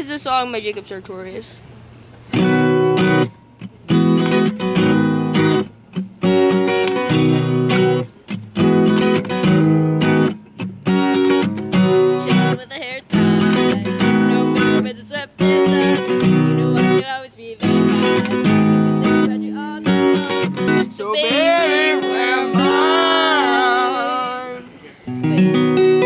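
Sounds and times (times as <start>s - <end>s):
acoustic guitar strumming chords: 2.3s - 26.0s
girl singing: 12.1s - 26.0s.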